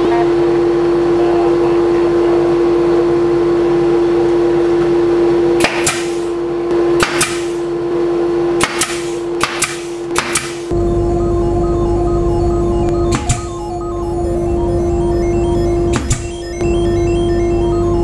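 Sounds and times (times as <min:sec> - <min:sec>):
steady hum: 0:00.0 - 0:18.0
pneumatic nail gun shots: 0:05.6 - 0:06.3, 0:07.0 - 0:07.7, 0:08.6 - 0:10.7, 0:15.9 - 0:16.3.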